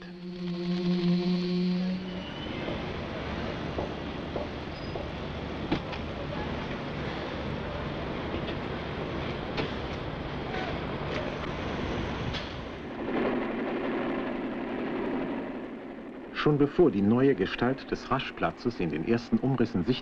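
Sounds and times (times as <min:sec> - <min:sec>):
higher-pitched engine drone: 0:00.0 - 0:05.0
machinery engine rumble: 0:00.0 - 0:20.0.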